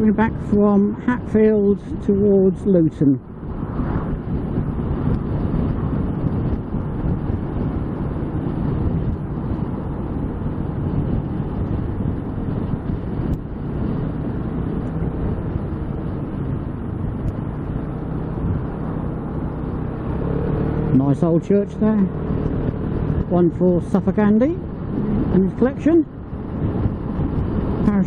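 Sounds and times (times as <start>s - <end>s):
wind buffeting microphone: 0.0s - 28.0s
scooter engine humming: 3.2s - 28.0s.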